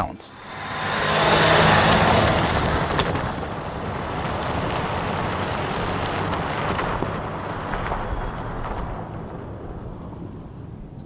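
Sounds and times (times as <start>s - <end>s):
pickup truck engine passing: 0.3s - 8.2s.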